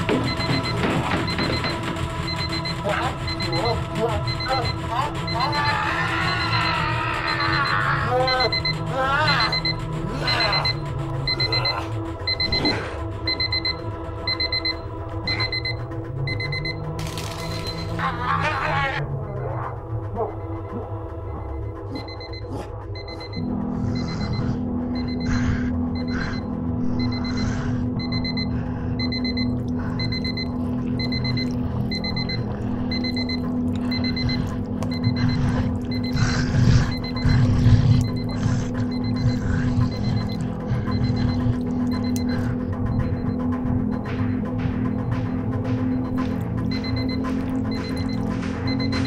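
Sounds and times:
alarm clock beeping: 0:00.0 - 0:49.0
low drone: 0:19.0 - 0:49.0.

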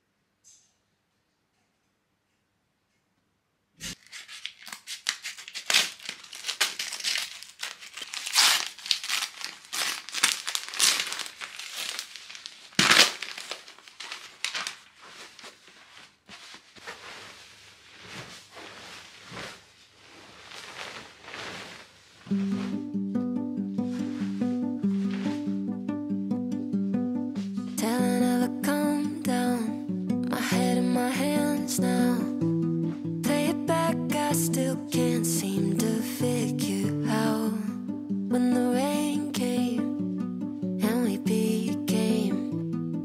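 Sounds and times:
paper crinkling and tearing: 0:03.8 - 0:22.9.

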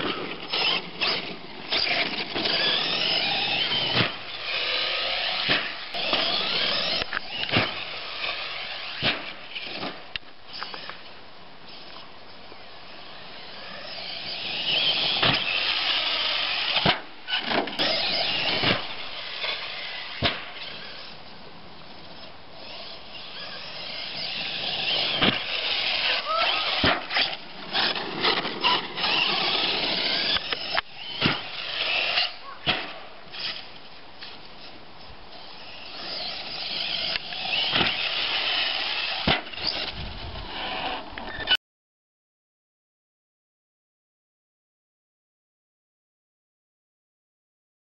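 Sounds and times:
electric motor whining: 0:00.2 - 0:09.8, 0:13.0 - 0:21.2, 0:22.1 - 0:32.4, 0:35.3 - 0:41.6.

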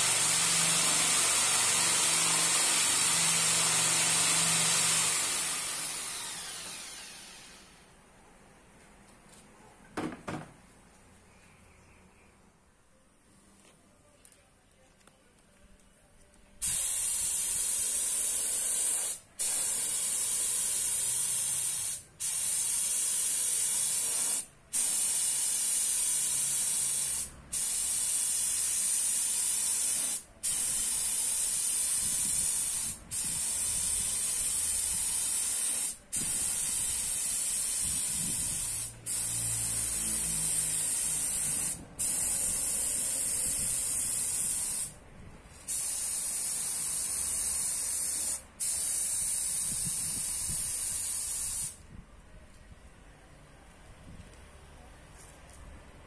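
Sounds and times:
spray gun hissing: 0:16.6 - 0:45.0, 0:45.7 - 0:51.8.

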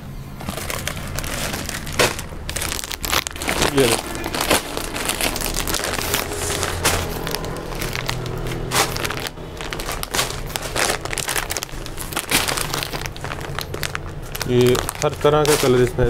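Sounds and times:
plastic packaging crinkling: 0:00.3 - 0:16.0.

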